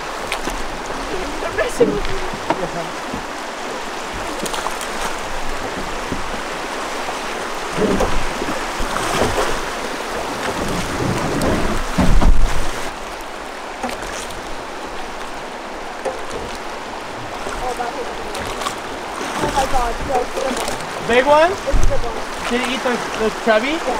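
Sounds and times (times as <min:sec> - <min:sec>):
oars splashing: 0:00.0 - 0:23.9
rushing river water: 0:00.0 - 0:23.9.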